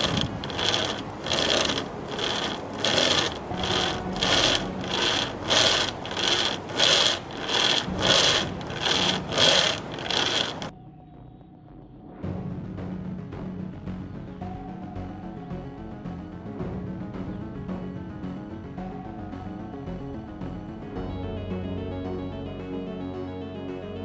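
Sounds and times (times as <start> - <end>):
chain saw rasping through wood: 0.0 - 10.7.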